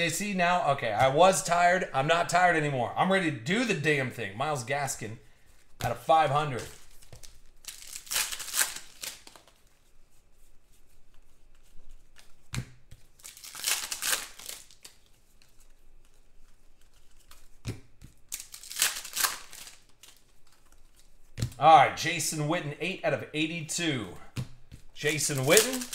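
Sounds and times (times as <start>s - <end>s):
foil wrapper tearing and crinkling: 6.6s - 9.6s, 13.1s - 15.6s, 18.2s - 21.2s, 25.0s - 25.9s.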